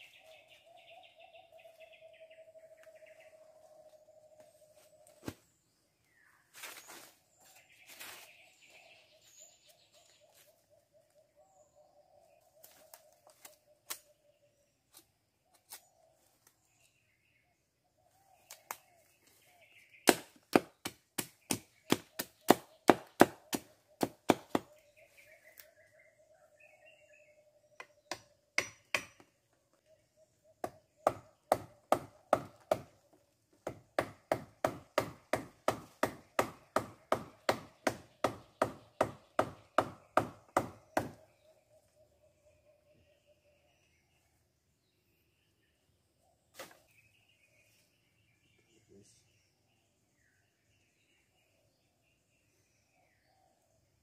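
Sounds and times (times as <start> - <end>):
machete chopping wooden stick: 20.0 - 24.7, 27.8 - 29.3, 33.6 - 41.2, 46.6 - 46.8.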